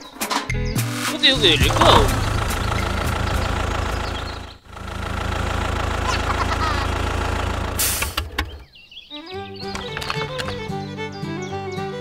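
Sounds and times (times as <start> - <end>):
engine idling: 1.4 - 8.7
short hiss: 7.8 - 8.2.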